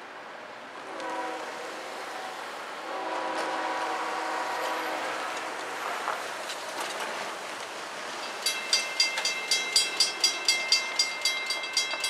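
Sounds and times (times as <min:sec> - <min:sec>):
locomotive air horn blasts: 0:00.8 - 0:05.8.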